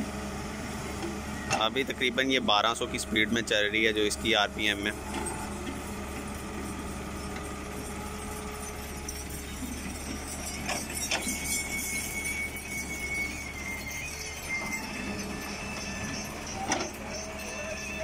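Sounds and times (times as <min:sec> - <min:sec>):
excavator diesel engine running: 0:00.0 - 0:18.0
thin high whine: 0:10.4 - 0:18.0.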